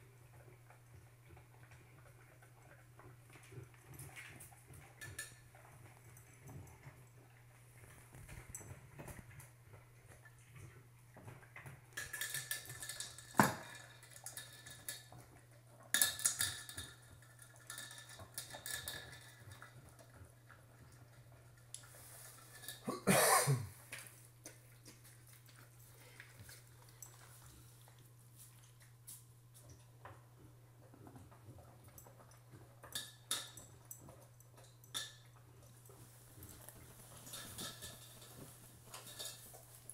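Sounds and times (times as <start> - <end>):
metal bowl clanking and scraping: 21.8 - 22.9, 36.0 - 39.9
dog crunching dry kibble: 23.8 - 30.0, 30.8 - 39.9.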